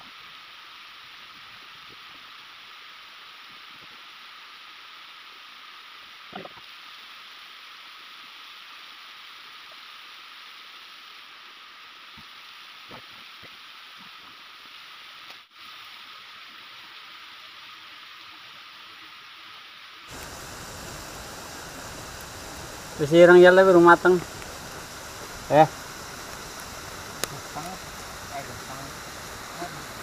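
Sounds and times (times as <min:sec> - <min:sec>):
waterfall and stream rushing: 0:00.0 - 0:30.0
faint snaps: 0:27.2 - 0:27.4.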